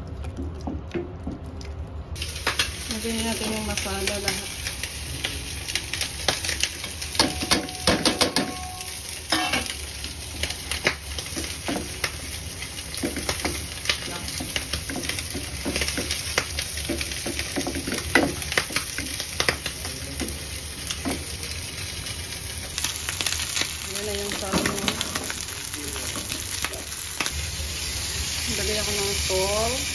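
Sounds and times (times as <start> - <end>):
frying hiss: 2.2 - 29.9
utensil tapping a pan: 7.2 - 9.6.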